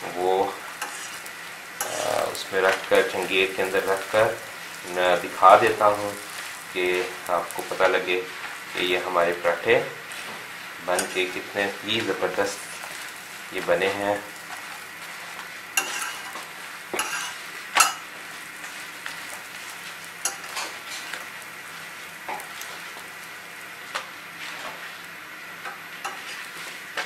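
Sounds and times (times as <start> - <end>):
flatbreads sizzling on griddle: 0.0 - 27.0
metal tongs scraping griddle: 0.8 - 4.2, 10.1 - 13.0, 13.6 - 18.0, 18.6 - 21.2, 24.4 - 25.0, 26.0 - 26.8.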